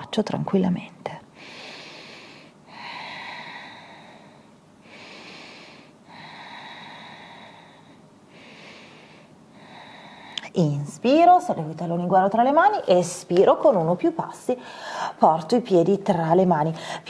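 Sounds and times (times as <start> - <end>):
woman breathing deeply: 1.3 - 10.5, 14.6 - 15.2, 16.8 - 17.0.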